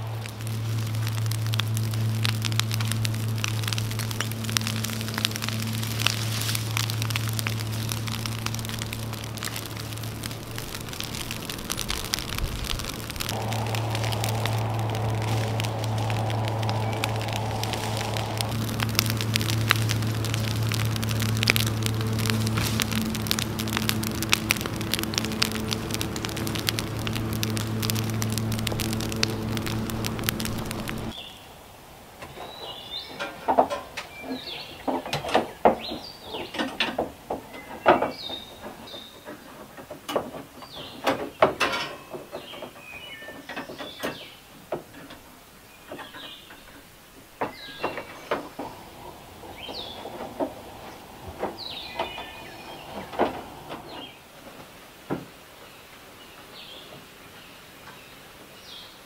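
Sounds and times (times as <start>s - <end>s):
steady low hum: 0.0s - 31.2s
fire crackling: 0.0s - 42.9s, 43.8s - 55.1s
birds chirping: 45.6s - 54.2s.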